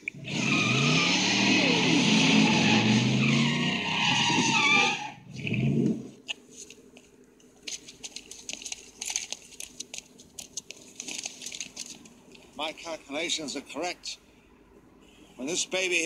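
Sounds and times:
tyres squealing: 0.2s - 5.3s.

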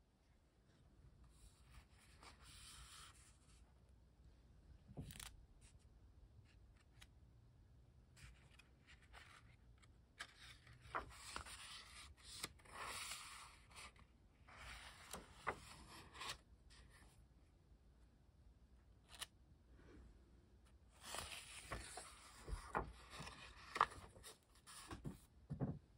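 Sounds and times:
paper pages turning: 5.0s - 5.4s, 8.2s - 16.5s, 19.0s - 19.3s, 21.0s - 25.3s.

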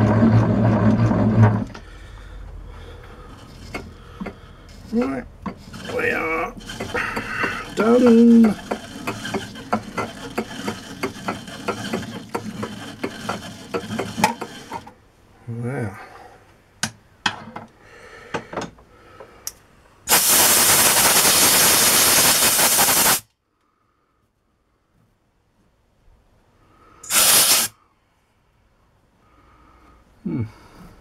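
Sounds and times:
die cutting thread on steel: 5.0s - 14.9s
compressed air blast: 20.1s - 23.3s, 27.0s - 27.8s.

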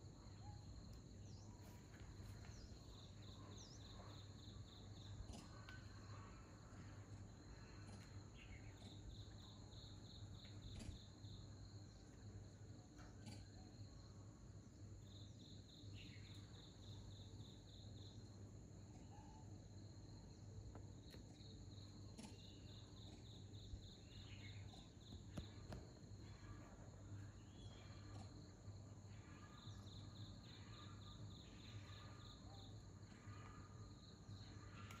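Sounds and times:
insect chirping: 0.0s - 35.0s.

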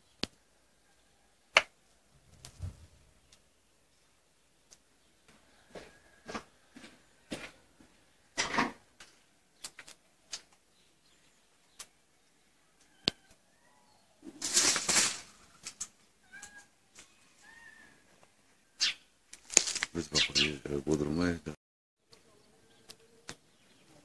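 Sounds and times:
loud scraping crunch: 14.3s - 15.9s
animal high cries: 16.2s - 16.8s.

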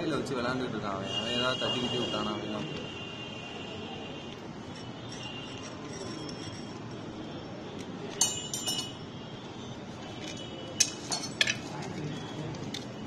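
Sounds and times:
metal clutch parts clinking: 8.1s - 9.0s, 10.2s - 12.0s.

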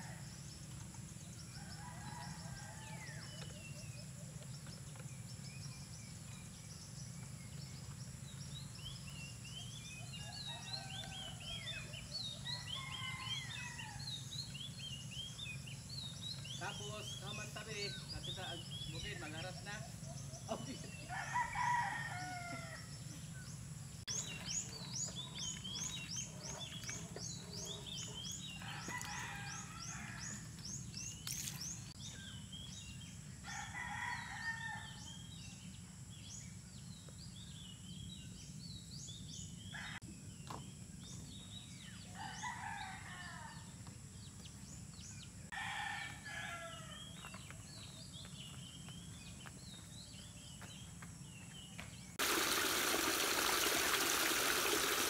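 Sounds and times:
roosters crowing: 1.5s - 3.5s, 10.0s - 14.4s, 20.6s - 23.1s, 27.3s - 30.6s, 33.4s - 35.2s, 42.1s - 43.7s, 45.5s - 47.1s, 52.2s - 55.0s
small birds chirping: 3.4s - 21.2s.

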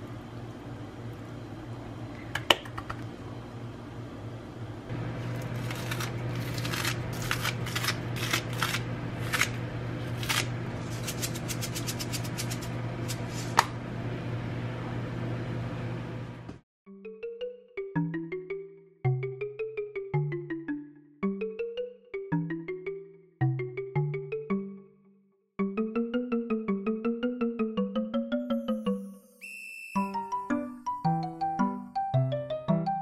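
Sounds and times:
steady low hum: 0.0s - 16.6s
scissors snipping: 5.3s - 13.2s.

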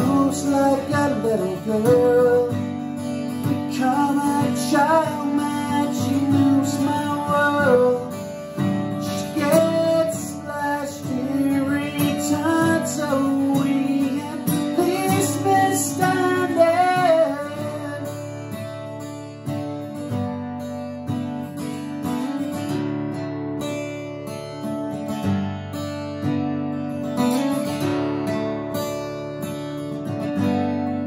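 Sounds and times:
man singing: 0.0s - 18.4s
acoustic guitar strumming: 0.0s - 31.0s.

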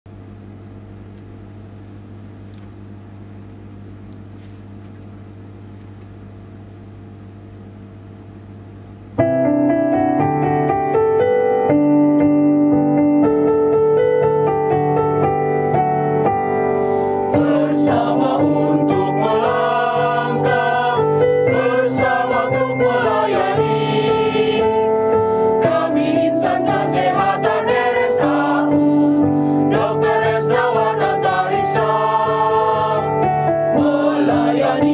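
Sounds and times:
electronic keyboard music: 9.2s - 34.9s.

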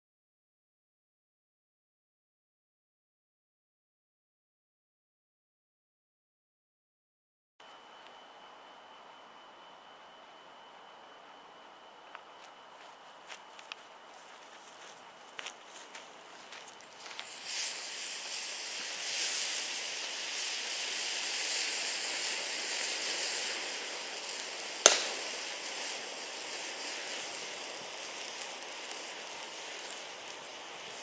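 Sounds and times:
thermite burning with hissing rush: 12.1s - 31.0s
sharp crack: 24.7s - 27.0s.

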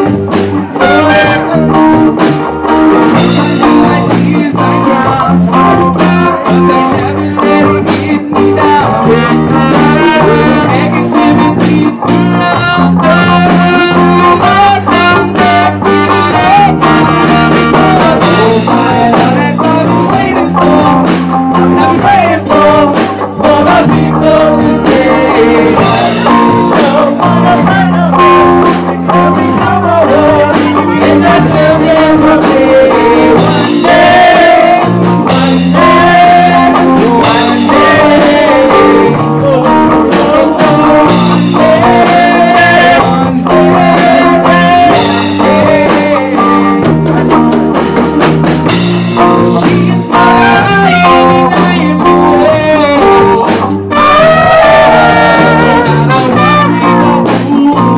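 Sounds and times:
man singing: 0.0s - 47.0s, 48.6s - 57.9s
drum kit: 0.0s - 57.9s
electric bass guitar: 0.0s - 57.9s
trumpet: 0.7s - 2.1s, 8.9s - 19.4s, 53.9s - 57.9s.

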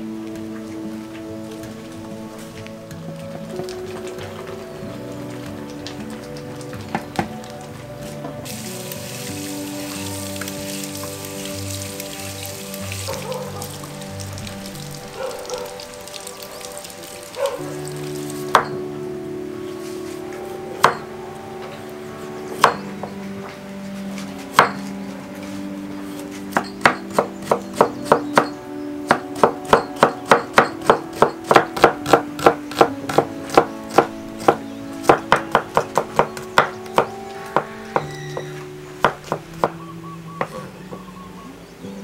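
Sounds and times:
knife chopping on wooden board: 24.6s - 24.8s, 29.1s - 38.1s, 39.0s - 39.4s.

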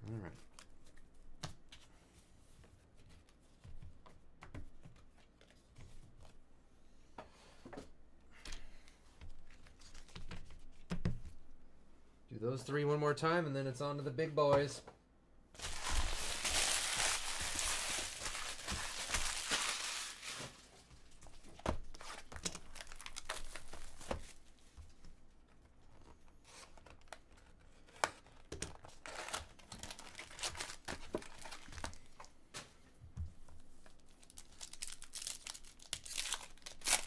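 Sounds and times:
foil packs ripping open: 15.6s - 20.8s, 22.0s - 24.3s, 28.8s - 32.0s, 34.2s - 37.0s
foil wrappers crinkling: 15.6s - 24.4s, 28.8s - 32.1s, 33.9s - 37.0s.

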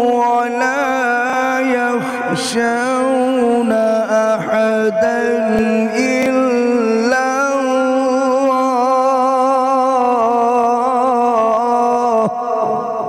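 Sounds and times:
man reciting a long melodic note: 0.0s - 13.0s.

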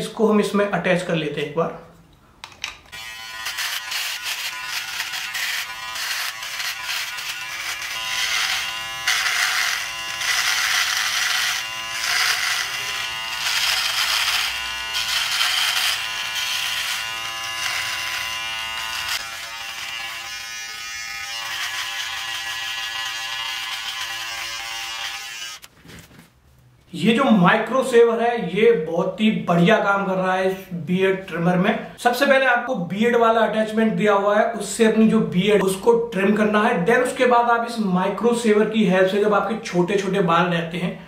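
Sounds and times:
shaver buzzing over stubble: 2.9s - 25.7s.

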